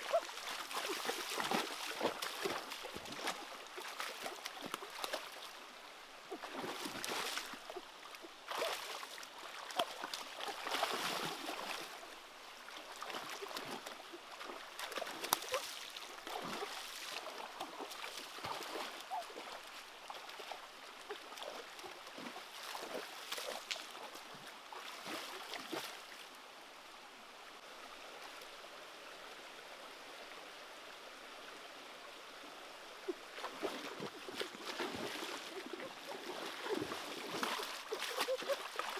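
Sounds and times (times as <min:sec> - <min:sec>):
splashing through water: 0:00.0 - 0:05.6, 0:06.3 - 0:12.0, 0:12.8 - 0:26.2, 0:33.0 - 0:38.9
stream running over rocks: 0:00.0 - 0:38.9.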